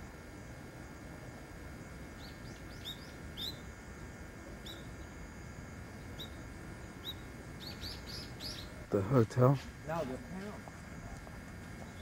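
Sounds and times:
steady low hiss: 0.0s - 12.0s
small birds chirping: 2.1s - 3.8s, 4.6s - 5.3s, 5.9s - 10.4s, 11.1s - 12.0s.

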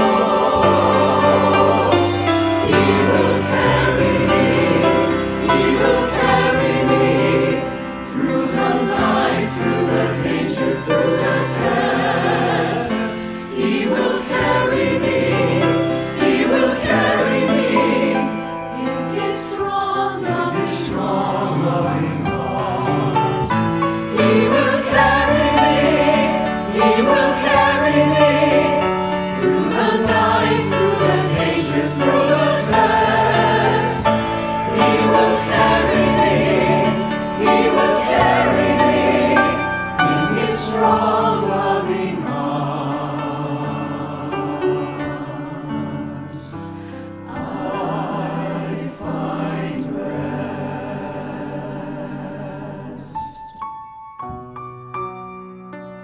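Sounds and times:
church choir singing: 0.0s - 53.8s.

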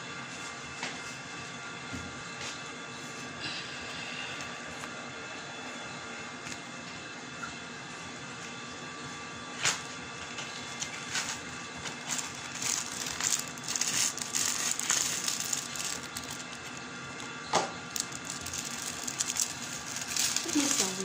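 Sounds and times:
plastic bag crinkling: 10.6s - 21.0s.

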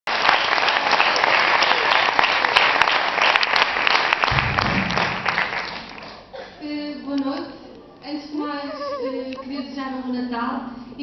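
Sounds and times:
audience applauding: 0.1s - 6.3s
low rumble: 4.3s - 5.8s.

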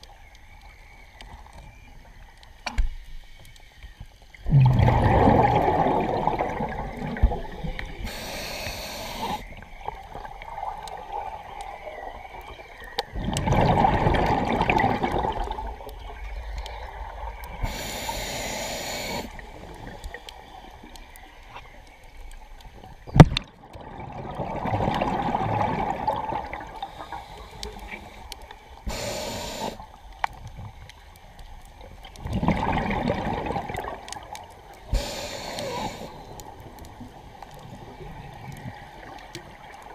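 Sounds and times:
exhaled bubbles gurgling: 4.4s - 39.9s
regulator hiss on inhale: 8.0s - 9.6s, 17.6s - 20.6s, 26.8s - 30.0s, 34.9s - 36.6s.

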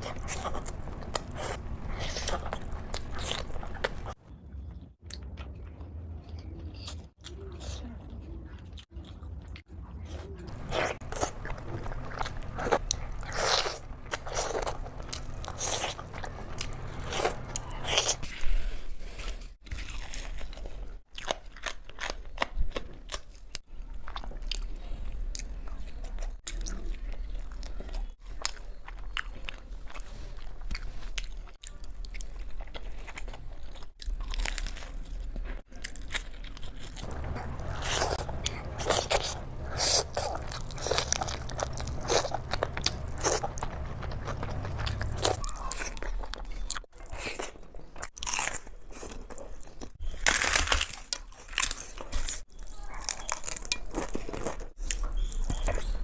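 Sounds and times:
crunching and chewing snacks: 0.0s - 56.0s
low hum: 10.5s - 18.2s, 37.0s - 45.6s.

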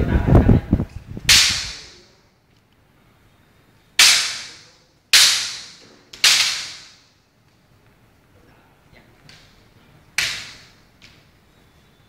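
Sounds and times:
bamboo swords striking: 1.3s - 2.0s, 4.0s - 7.1s, 10.2s - 10.8s.

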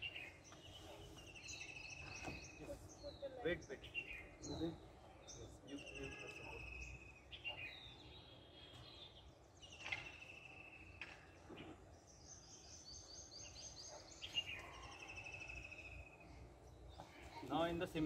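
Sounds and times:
low outdoor background: 0.0s - 18.0s
small birds whistling: 5.4s - 16.9s
bird trill: 5.6s - 11.2s, 12.1s - 16.5s.

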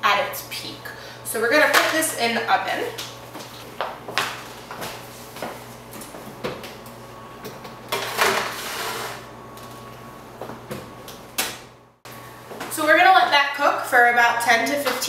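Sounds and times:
pan scraping on metal rack: 8.0s - 9.2s.

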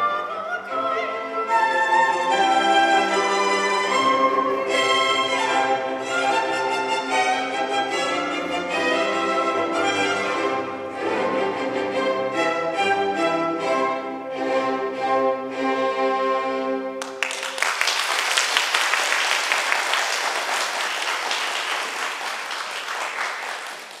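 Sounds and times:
audience applause: 17.0s - 24.0s.

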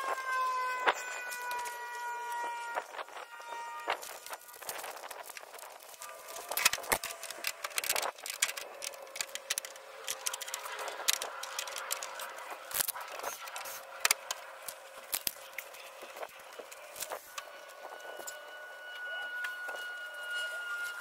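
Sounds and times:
hands clicking and rattling parts: 4.1s - 15.9s.

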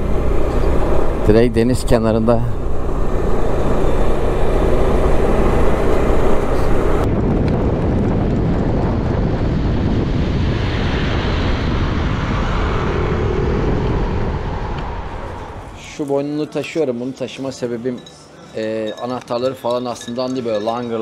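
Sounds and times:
scooter engine: 0.0s - 8.7s
wind rushing over microphone: 0.0s - 16.0s
road noise: 0.0s - 21.0s.

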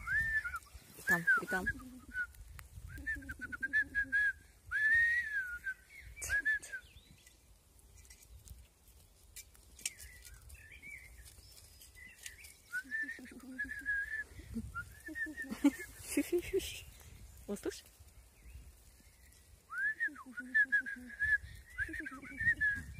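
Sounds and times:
boy whistling bird calls: 0.0s - 7.2s, 12.0s - 15.9s, 19.7s - 22.9s.

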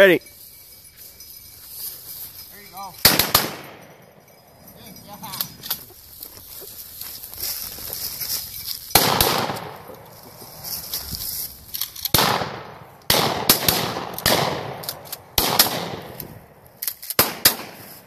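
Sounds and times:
shotgun shots echoing: 3.0s - 4.0s, 8.9s - 10.1s, 12.1s - 16.6s, 17.2s - 17.9s.

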